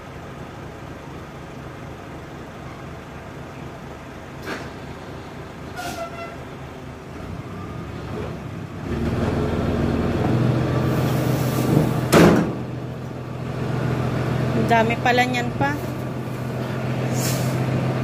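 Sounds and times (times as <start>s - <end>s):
dump truck diesel engine revving: 7.1s - 18.0s.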